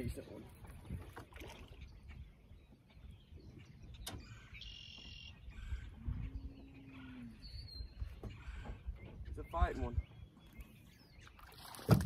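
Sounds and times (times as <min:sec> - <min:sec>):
wind rumble on microphone: 0:00.0 - 0:04.5, 0:05.3 - 0:10.4.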